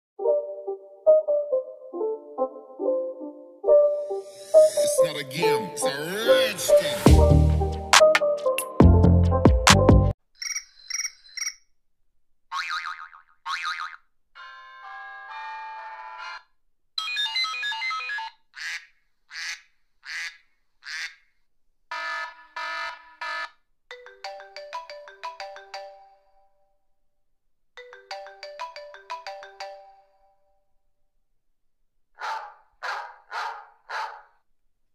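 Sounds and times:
ringtone-like melody: 0.2s - 11.5s, 14.4s - 16.4s, 17.0s - 18.4s, 23.9s - 26.5s, 27.8s - 30.4s
electronic beeps: 10.4s - 11.6s.

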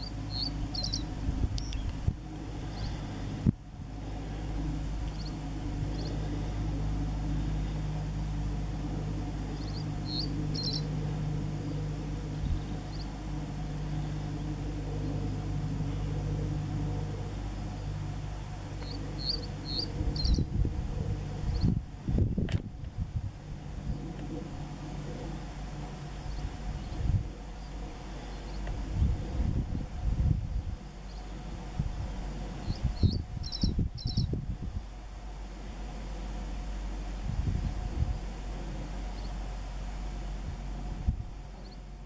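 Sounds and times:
bird singing high chirps: 0.0s - 2.0s, 5.1s - 6.3s, 9.5s - 11.0s, 12.4s - 13.2s, 17.8s - 20.5s, 32.6s - 34.4s
steady low hum: 0.0s - 42.0s.

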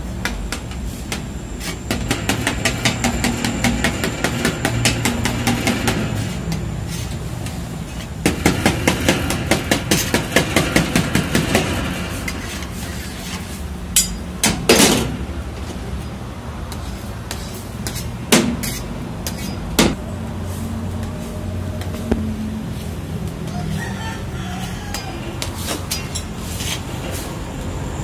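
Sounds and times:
metal spatula scraping a pan: 0.9s - 14.1s, 16.7s - 19.6s.

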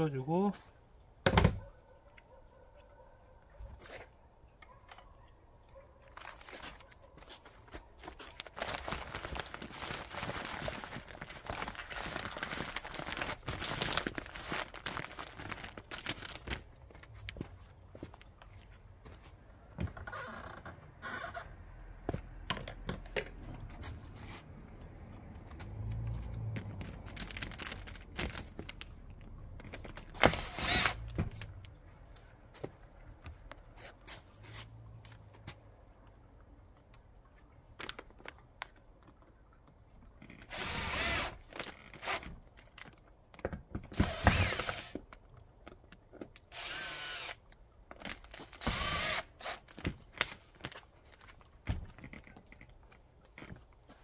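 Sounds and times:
power drill bursts: 30.2s - 31.0s, 44.0s - 44.9s, 46.5s - 47.4s, 48.6s - 49.6s.

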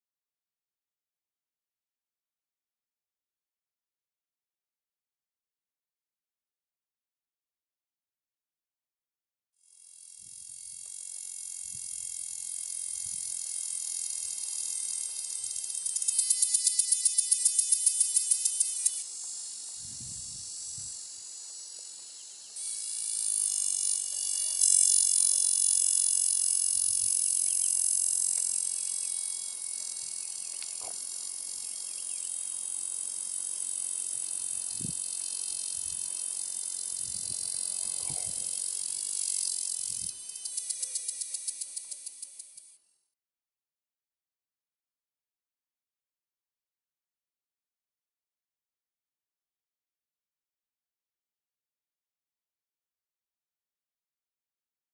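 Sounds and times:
cicada buzzing song: 9.6s - 43.0s.

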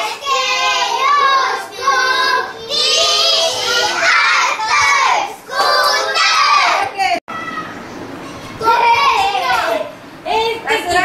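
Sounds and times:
young children singing: 0.0s - 6.9s.

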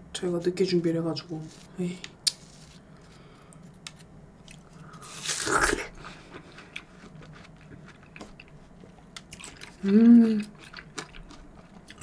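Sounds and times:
chewing watermelon: 4.4s - 12.0s
crisp juicy bite: 4.5s - 6.0s.

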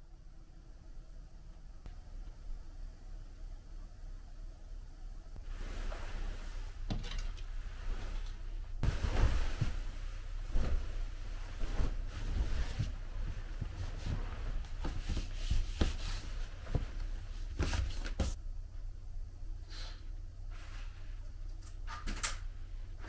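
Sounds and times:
low steady hum: 0.0s - 23.0s
bedding rustling: 5.4s - 18.4s.

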